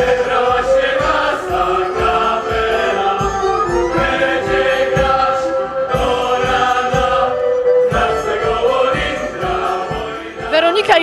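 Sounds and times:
men's choir singing: 0.0s - 10.9s
folk band: 0.0s - 11.0s.

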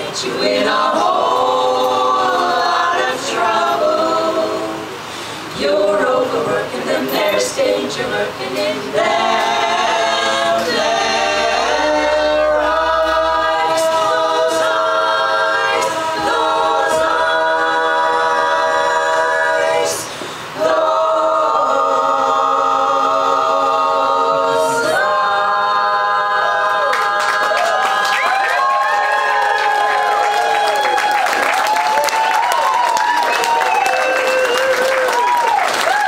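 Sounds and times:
women's a cappella singing: 0.0s - 29.6s.

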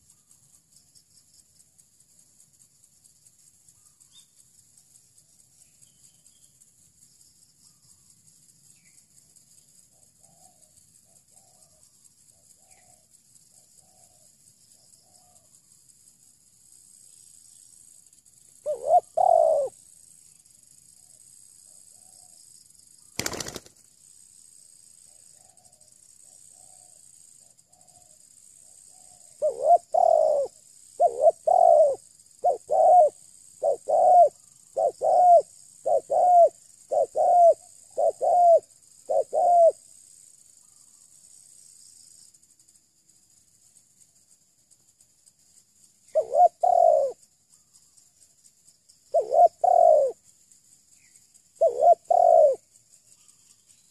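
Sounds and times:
dove cooing: 18.6s - 19.8s, 23.2s - 23.6s, 29.2s - 39.8s, 46.1s - 47.2s, 49.1s - 50.2s, 51.6s - 52.6s.

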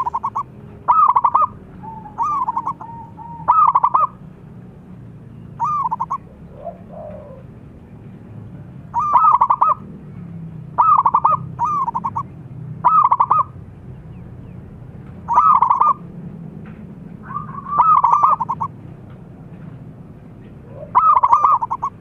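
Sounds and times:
dove cooing: 0.0s - 4.3s, 5.5s - 7.8s, 8.8s - 13.6s, 15.2s - 16.1s, 17.1s - 18.8s, 20.3s - 22.0s.

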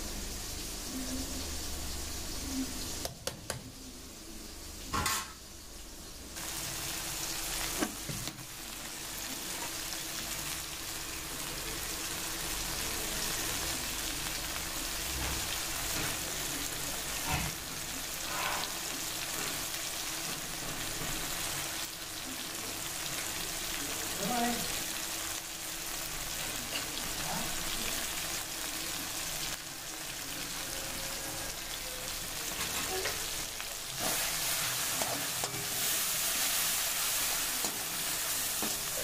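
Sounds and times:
onion and tomato sizzling in oil: 0.0s - 39.0s.

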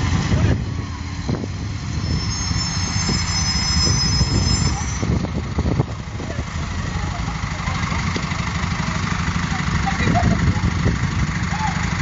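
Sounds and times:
thin high squeal: 1.7s - 5.1s.

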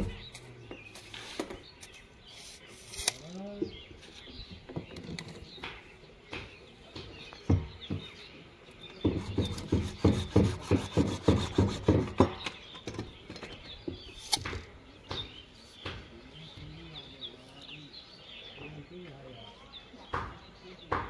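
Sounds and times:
hand saw cutting plastic pipe: 9.1s - 12.3s.

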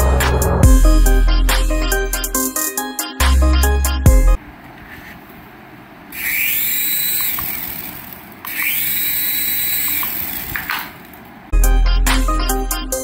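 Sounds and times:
toy helicopter rotor motor whine: 6.1s - 11.0s.

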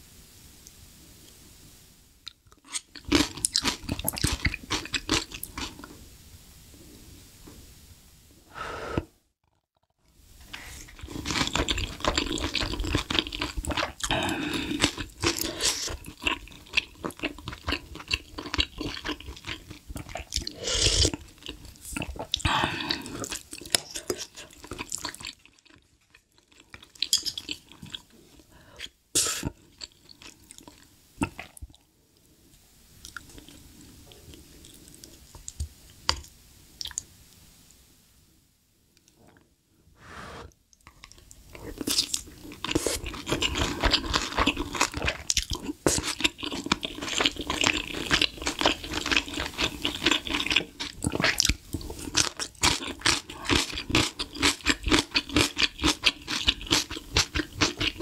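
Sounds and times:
close chewing of soup and rice: 2.2s - 5.9s, 10.4s - 31.8s, 33.0s - 37.0s, 40.7s - 58.0s.

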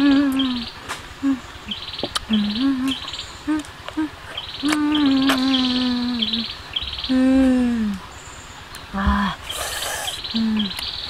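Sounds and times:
woman humming: 0.0s - 6.5s, 7.1s - 8.0s, 8.9s - 10.8s
insects chirping: 0.0s - 11.0s.

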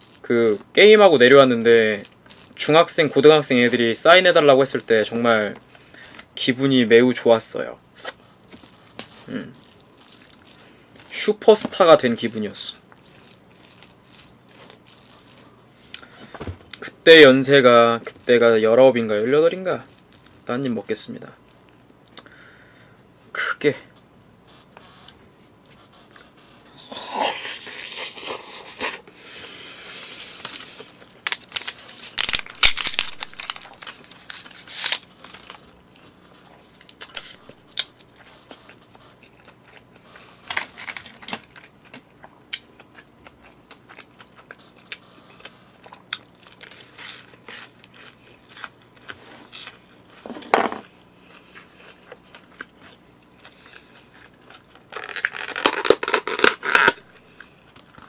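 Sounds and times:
plastic packaging crinkling: 0.0s - 6.3s, 8.0s - 22.2s, 30.2s - 38.8s, 40.4s - 42.0s, 46.2s - 50.7s, 54.1s - 58.0s
person chewing: 1.9s - 2.6s, 8.0s - 17.0s, 24.5s - 31.2s, 32.9s - 50.2s, 50.8s - 58.0s.

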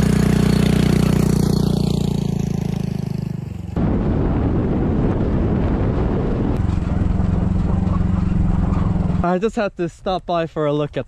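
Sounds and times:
motorcycle engine running: 0.0s - 3.8s, 6.6s - 9.4s
wind buffeting on microphone: 3.8s - 7.9s.

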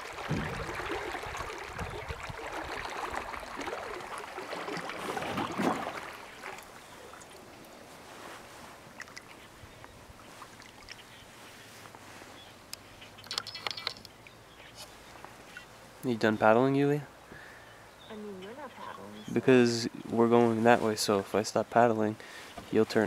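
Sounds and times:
water dripping: 0.0s - 7.8s, 9.0s - 11.2s
paddles swishing through water: 0.0s - 16.0s.

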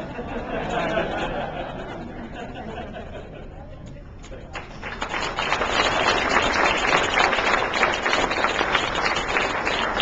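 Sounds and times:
audience applauding: 4.6s - 10.0s.

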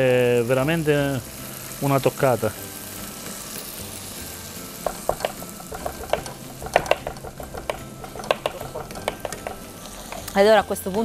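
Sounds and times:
pan frying hiss: 0.0s - 11.0s
knife chopping on plastic board: 4.9s - 10.2s.

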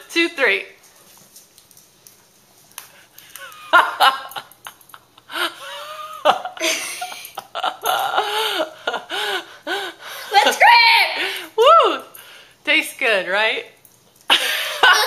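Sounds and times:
boy laughing: 3.4s - 11.8s, 14.3s - 15.0s.

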